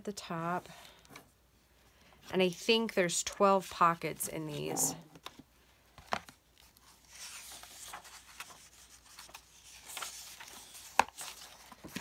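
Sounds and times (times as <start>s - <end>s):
book pages rustling: 3.6s - 12.0s.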